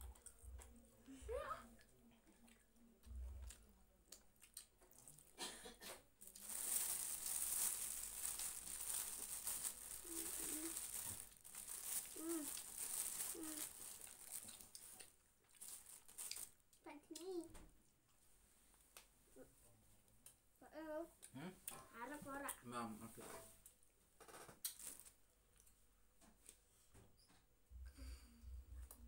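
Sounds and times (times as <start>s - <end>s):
children chewing and smacking: 0.0s - 0.9s, 1.7s - 6.6s, 7.6s - 17.3s, 23.7s - 26.9s
crinkling rustle: 6.2s - 16.6s, 24.7s - 25.2s.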